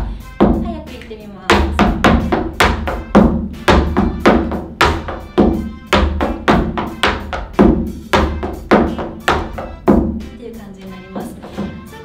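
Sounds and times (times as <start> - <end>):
tap shoes on wooden board: 1.5 - 10.2.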